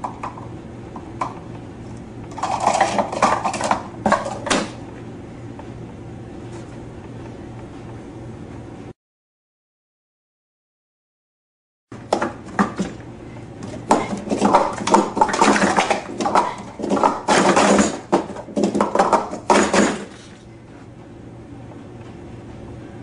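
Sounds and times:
plastic cups clattering: 2.3s - 4.6s, 13.8s - 20.3s.

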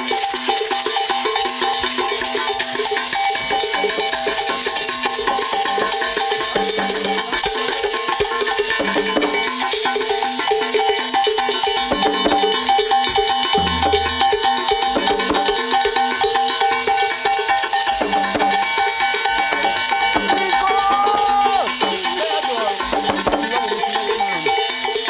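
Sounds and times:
ringing iron bells: 0.0s - 25.0s
low drum strokes: 13.6s - 15.4s.

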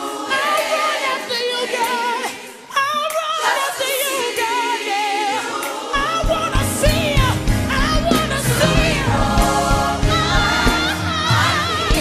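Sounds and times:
voices singing with vibrato: 0.0s - 12.0s
deep steady beat: 6.3s - 10.9s.

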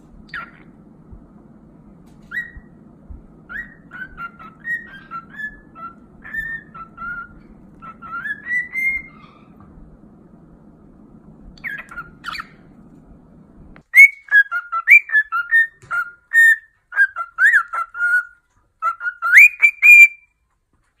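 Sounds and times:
cockatiel chirps: 0.3s - 0.6s, 2.2s - 2.7s, 3.5s - 9.6s, 11.6s - 12.6s, 13.9s - 20.3s
cockatiel whistling a tune: 2.2s - 2.7s, 3.5s - 9.4s, 11.6s - 12.6s, 13.9s - 20.3s.

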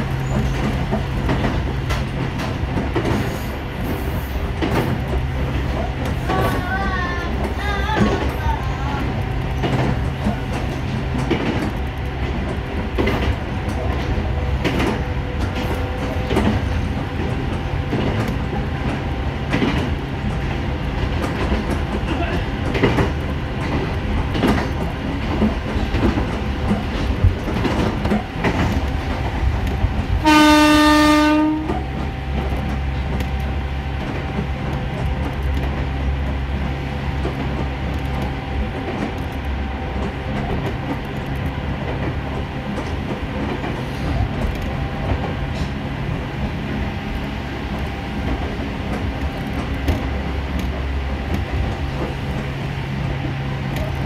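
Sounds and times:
electric train rumbling: 0.0s - 54.0s
rail-joint clicks: 0.0s - 54.0s
train horn blast: 30.2s - 31.9s.

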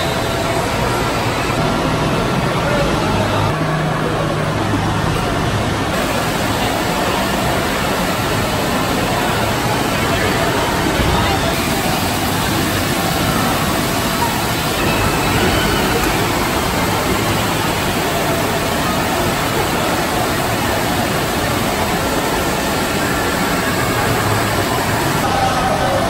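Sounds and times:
rushing water echoing in hall: 0.0s - 26.0s.

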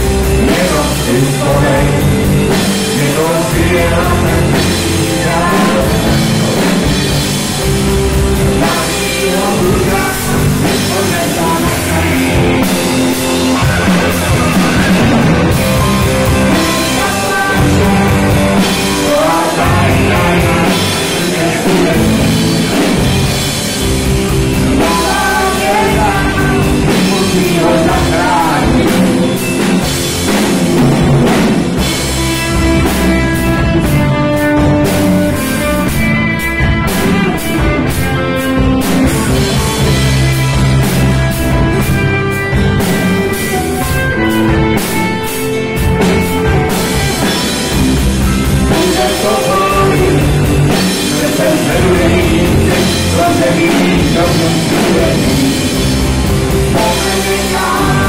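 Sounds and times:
man singing: 0.0s - 7.4s, 8.4s - 30.6s, 48.4s - 58.0s
drums: 0.0s - 58.0s
electric guitars: 0.0s - 58.0s
woman singing: 16.6s - 22.3s, 24.8s - 29.4s.

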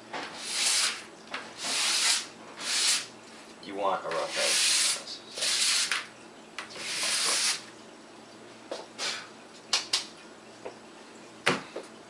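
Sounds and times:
sanding block scraping: 0.4s - 1.0s, 1.6s - 3.1s, 4.2s - 5.9s, 6.8s - 7.6s.

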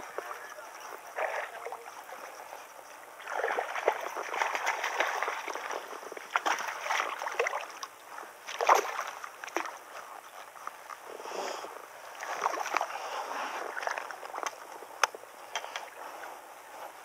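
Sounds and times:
fish splashing in water: 3.1s - 10.0s, 12.1s - 13.0s.

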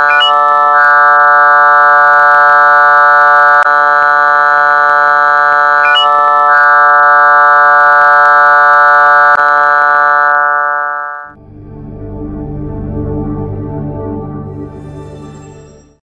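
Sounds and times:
synthesized drone chord: 9.4s - 16.0s.

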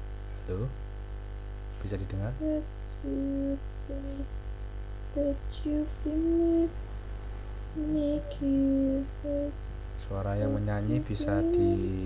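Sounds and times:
low electrical hum: 0.0s - 12.0s
person humming a slow tune: 2.4s - 4.3s, 5.1s - 6.8s, 7.7s - 9.6s, 10.2s - 12.0s.

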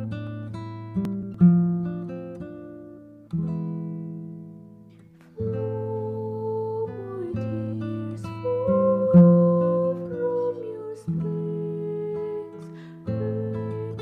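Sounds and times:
girl singing: 5.4s - 14.0s.

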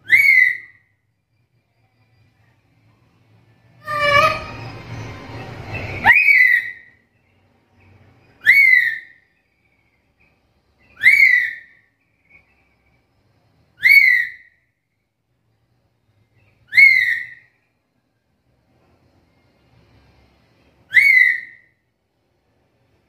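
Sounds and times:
parrot whistled call: 0.0s - 0.9s, 3.8s - 7.0s, 8.4s - 9.2s, 10.9s - 12.4s, 13.8s - 14.6s, 16.7s - 17.5s, 20.9s - 21.8s.

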